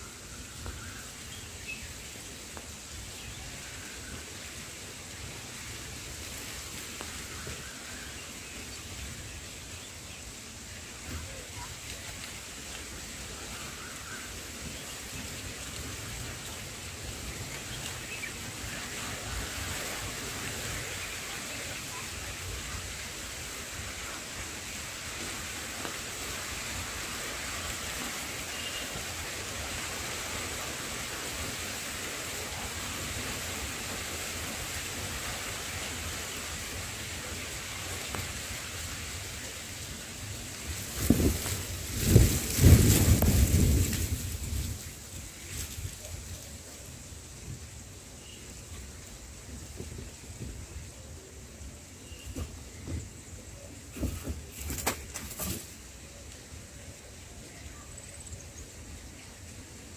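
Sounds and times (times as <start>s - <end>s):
outdoor background hiss: 0.0s - 59.9s
wind buffeting microphone: 40.7s - 46.0s.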